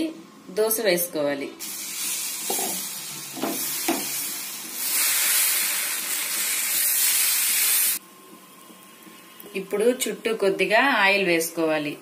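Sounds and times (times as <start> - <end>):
batter sizzling on hot griddle: 1.6 - 8.0.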